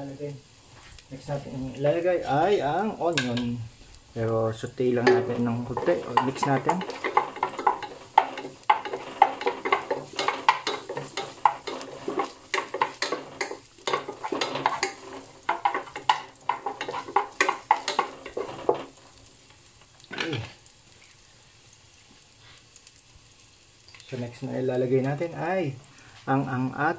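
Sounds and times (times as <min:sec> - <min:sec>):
garlic sizzling in oil: 0:00.0 - 0:26.9
utensil scraping a pan: 0:04.9 - 0:19.0.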